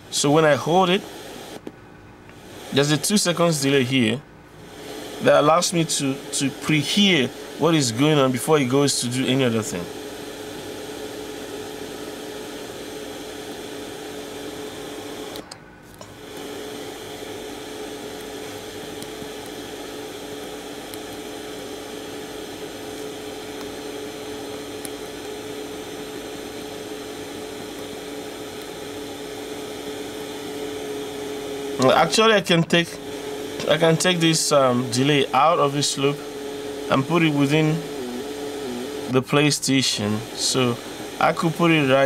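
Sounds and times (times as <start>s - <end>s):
radio static hiss: 0.0s - 1.6s, 2.4s - 15.4s, 16.2s - 42.0s
low steady hum: 20.7s - 42.0s.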